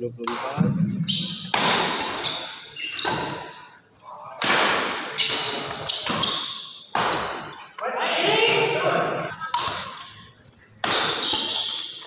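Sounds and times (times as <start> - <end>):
rackets hitting shuttlecock: 0.2 - 3.5, 4.4 - 7.6, 9.3 - 10.2, 10.8 - 12.0.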